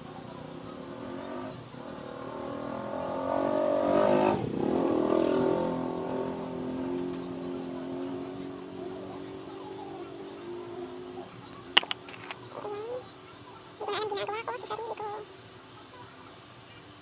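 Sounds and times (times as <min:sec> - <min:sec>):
vehicle driving past: 0:00.4 - 0:11.8.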